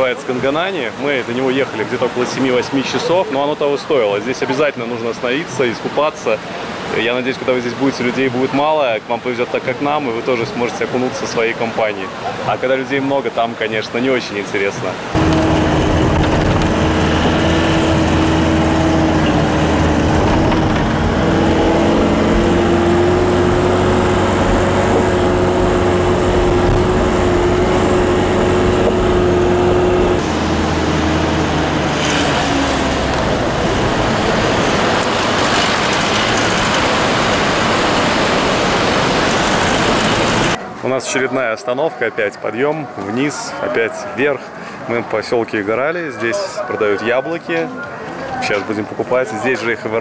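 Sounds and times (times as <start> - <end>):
rumbling road noise: 15.0 - 40.6
vehicle engine hum: 15.0 - 40.6.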